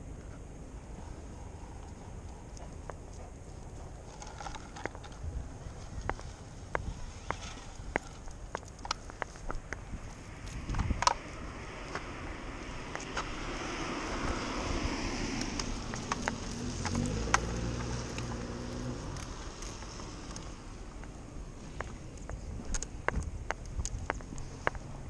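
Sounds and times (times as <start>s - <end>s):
car engine hum: 0.0s - 25.0s
tyres hissing on wet road: 11.6s - 20.9s.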